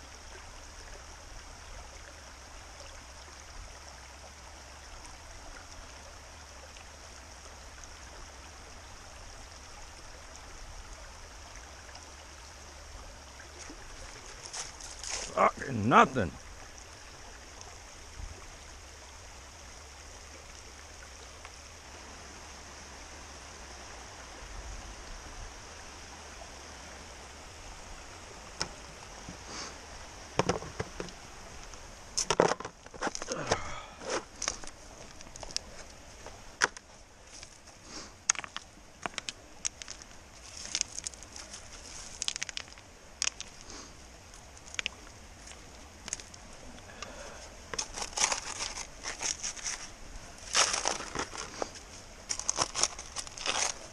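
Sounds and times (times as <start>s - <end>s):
creek rushing: 0.0s - 53.9s
trowel scraping stones and gravel: 47.8s - 53.9s.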